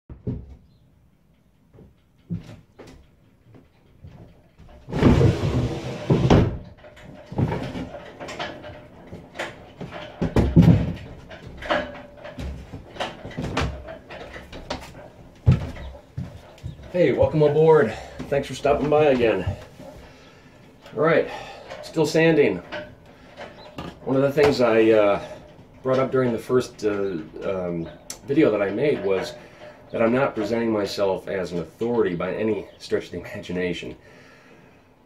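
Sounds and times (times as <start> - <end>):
footsteps on wooden steps: 1.7 - 6.3, 7.0 - 21.6.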